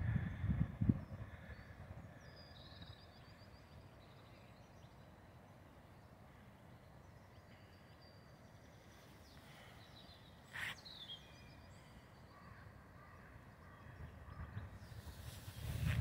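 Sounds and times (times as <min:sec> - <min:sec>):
distant bird chirps: 0:00.7 - 0:15.9.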